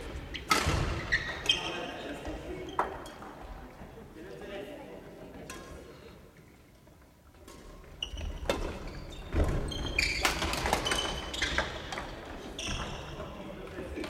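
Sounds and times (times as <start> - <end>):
sneakers squeaking on wooden floor: 0.1 - 3.3, 8.0 - 13.4.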